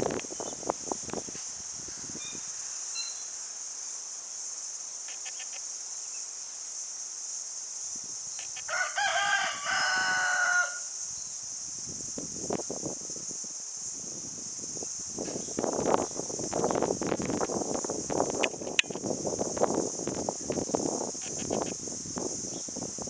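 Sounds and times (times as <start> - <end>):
steady high-pitched hiss: 0.0 - 23.0
rooster crowing: 8.6 - 10.9.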